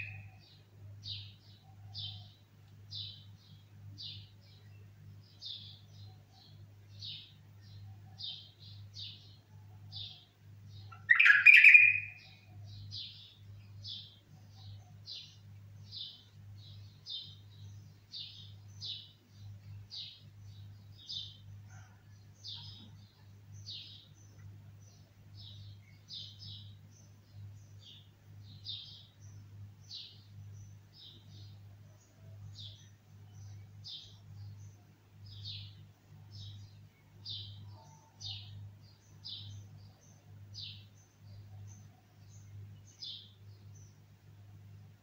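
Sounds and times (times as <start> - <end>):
bird chirping: 0.0 - 45.0
low electrical hum: 0.0 - 45.0
low bird call: 10.9 - 12.4.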